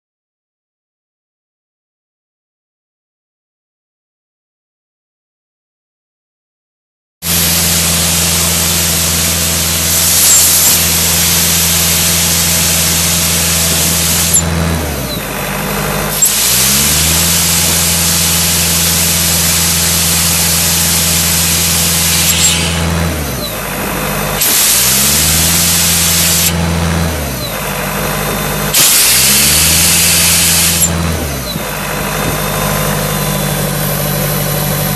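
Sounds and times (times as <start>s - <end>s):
diesel air compressor running: 7.2s - 34.9s
compressed air hissing from hose: 7.4s - 14.4s, 16.2s - 23.0s, 24.4s - 26.6s, 28.8s - 31.0s.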